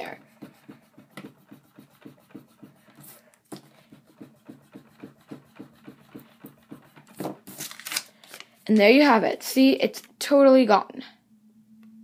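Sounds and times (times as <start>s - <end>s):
eraser rubbing on paper: 0.0s - 7.6s.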